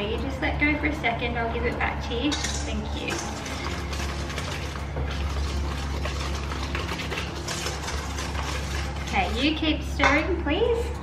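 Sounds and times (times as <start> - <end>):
whisk clinking against metal bowl: 2.2 - 10.4.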